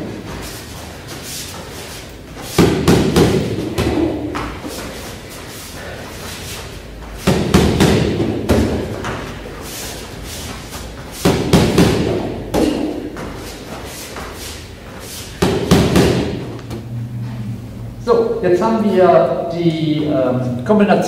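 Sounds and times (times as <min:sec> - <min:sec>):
punches hitting training pads: 0:02.5 - 0:04.6, 0:07.2 - 0:09.3, 0:11.2 - 0:13.3, 0:15.4 - 0:16.5.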